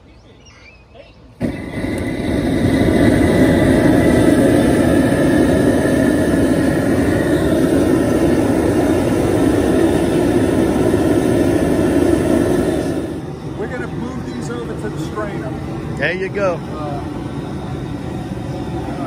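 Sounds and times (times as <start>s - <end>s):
gas jet burner roaring: 1.2s - 19.0s.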